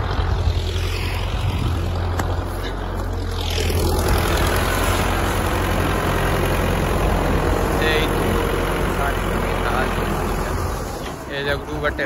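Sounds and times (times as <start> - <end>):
tractor diesel engine running: 0.0 - 12.0.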